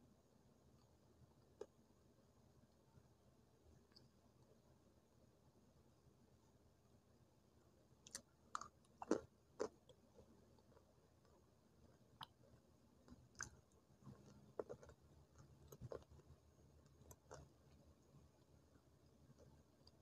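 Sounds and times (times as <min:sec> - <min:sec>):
dry crunches of chewing: 0:08.0 - 0:11.4, 0:13.1 - 0:17.8.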